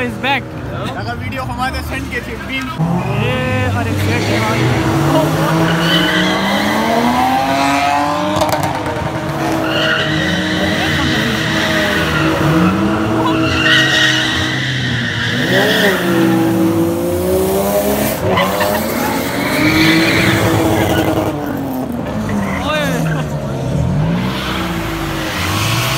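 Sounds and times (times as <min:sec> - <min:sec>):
car engines revving: 0:00.0 - 0:25.9
tyres squealing: 0:02.8 - 0:07.6, 0:09.4 - 0:17.0, 0:17.9 - 0:23.4.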